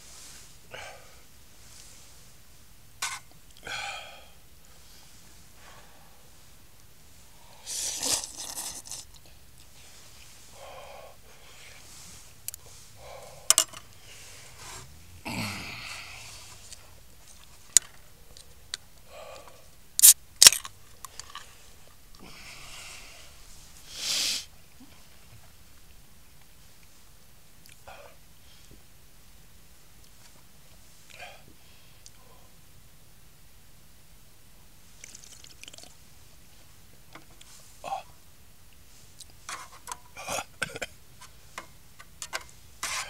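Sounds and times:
short breathy hisses: 7.4 - 8.8, 22.6 - 24.5.

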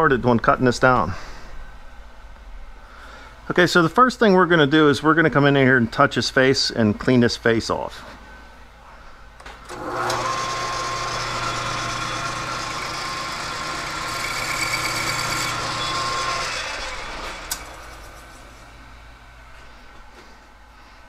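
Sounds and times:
metal lathe motor hum and whine: 9.7 - 19.4.

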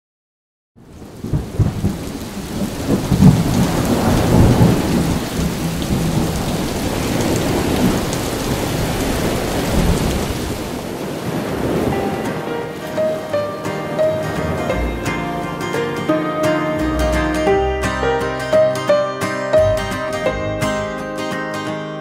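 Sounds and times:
heavy rain: 0.8 - 21.0
rolling thunder: 0.9 - 15.8.

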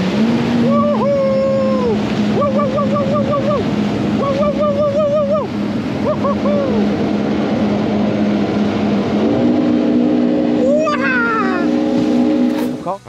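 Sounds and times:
jet ski engine running: 0.0 - 13.0
high wavering voice hooting: 0.6 - 7.0, 10.6 - 11.9.

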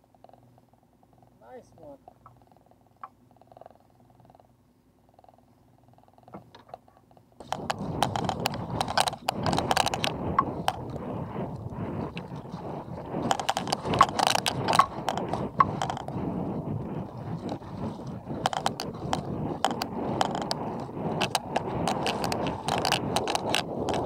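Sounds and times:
water splashing against hull: 7.4 - 24.0.

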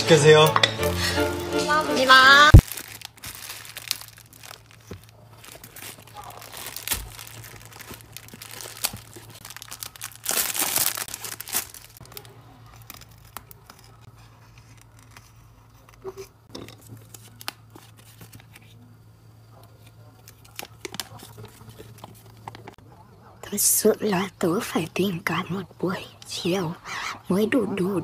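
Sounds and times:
plastic bag crinkling and tearing: 2.5 - 14.0
cardboard and paper rustling: 2.5 - 18.9, 19.8 - 22.8.

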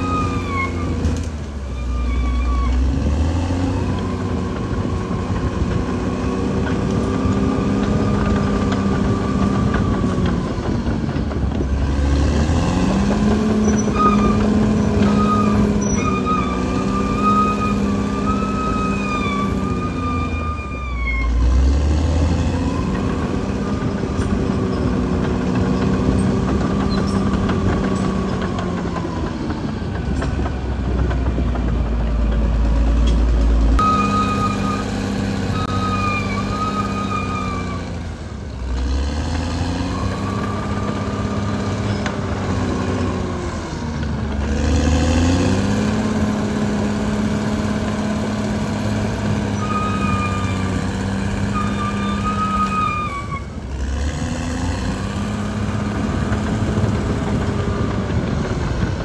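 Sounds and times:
bulldozer diesel engine running: 0.0 - 59.0.

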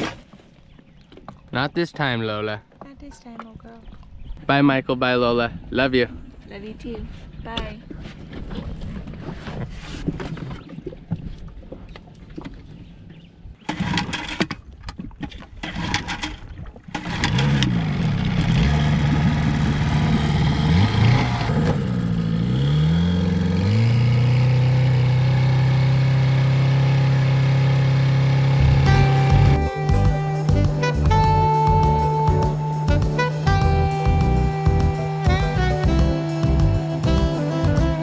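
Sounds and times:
outboard motor pull-start yanks: 13.6 - 22.0
outboard motor running: 15.6 - 38.0.

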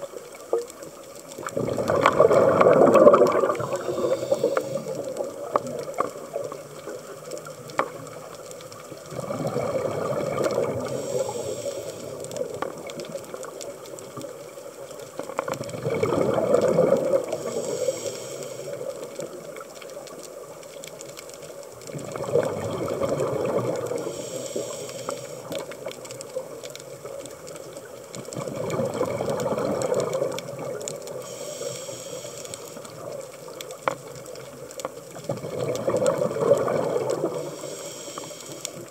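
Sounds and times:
regulator bubbles gurgling: 0.0 - 38.9
short high hiss: 17.4 - 18.8, 31.2 - 32.8.

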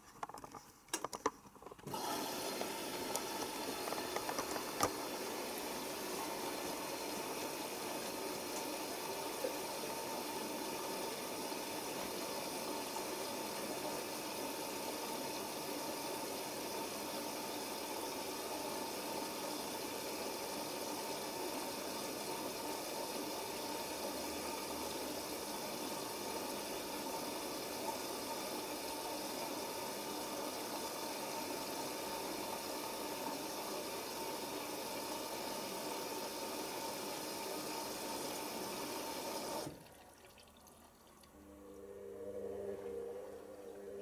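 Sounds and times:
water rushing into washing machine: 1.7 - 42.2.

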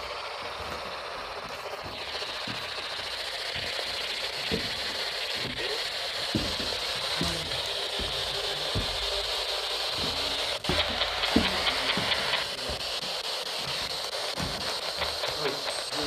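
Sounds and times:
radio static hiss: 0.0 - 16.0
footsteps on stairs: 0.4 - 16.0.

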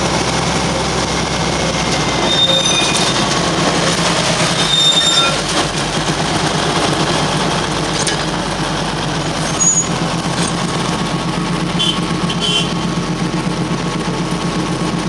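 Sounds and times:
train rumbling: 0.0 - 15.0
high-pitched squeals: 2.2 - 3.3, 4.2 - 5.5, 9.2 - 10.0.

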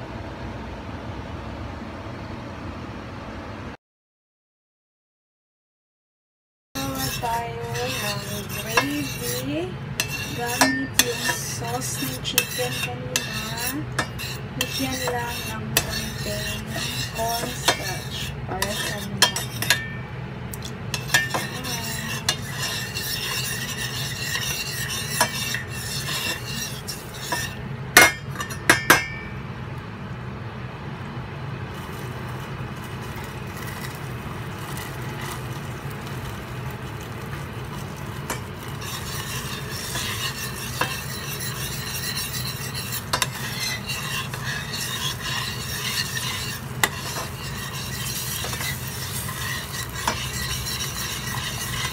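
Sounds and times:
sauce simmering hiss: 6.8 - 19.6, 31.6 - 51.9
spoon scraping and clinking in pot: 6.8 - 20.0, 20.9 - 29.3, 31.8 - 51.9.

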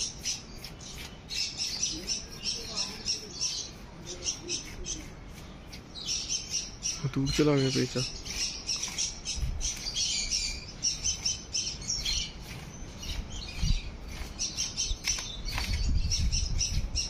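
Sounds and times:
small birds chirping: 0.0 - 17.0.

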